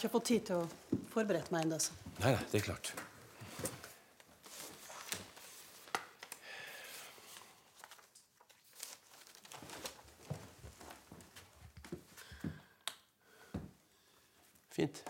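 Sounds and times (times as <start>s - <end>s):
paper sheets rustling: 3.4s - 11.4s.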